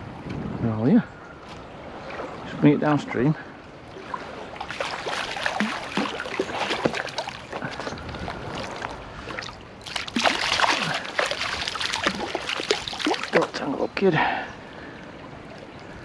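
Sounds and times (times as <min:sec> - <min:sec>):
running stream water: 0:00.6 - 0:16.0
fish splashing at water surface: 0:04.0 - 0:13.5.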